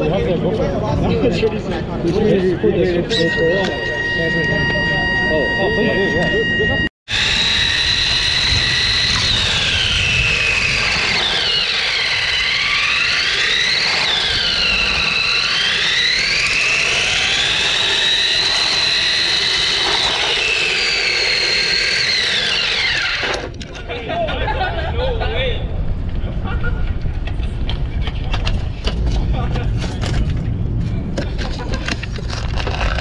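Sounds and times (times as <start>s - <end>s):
electric motor whining: 2.6s - 23.6s
wheels rumbling on rough concrete: 26.0s - 33.0s.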